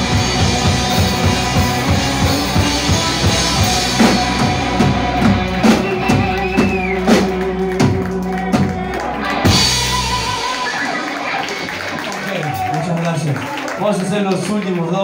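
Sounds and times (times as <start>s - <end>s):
electric guitar chord ringing: 0.0s - 11.9s.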